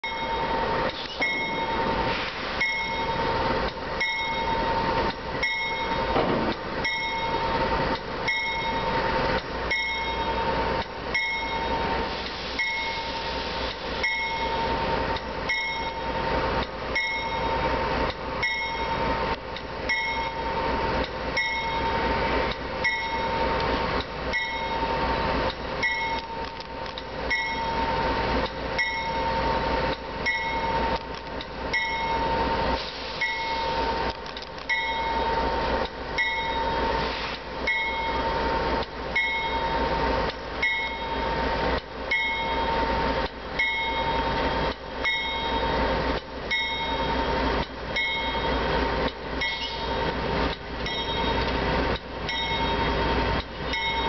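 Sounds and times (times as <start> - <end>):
locomotive bell ringing: 0.0 - 2.0, 2.6 - 3.4, 4.0 - 6.2, 6.8 - 12.0, 12.6 - 13.1, 14.0 - 16.2, 16.9 - 17.7, 18.4 - 19.3, 19.9 - 20.6, 21.4 - 22.2, 22.8 - 23.5, 24.3 - 25.0, 25.8 - 26.4, 27.3 - 28.2, 28.8 - 31.0, 31.7 - 32.5, 33.2 - 34.0, 34.7 - 35.6, 36.2 - 38.5, 39.1 - 40.0, 40.6 - 41.4, 42.1 - 50.1, 50.8 - 51.5, 52.3 - 54.0
low rumble of locomotive: 0.0 - 54.0.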